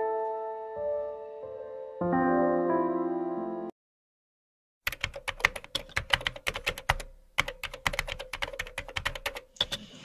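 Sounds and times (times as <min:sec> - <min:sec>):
keyboard typing clicks: 0:04.9 - 0:10.0.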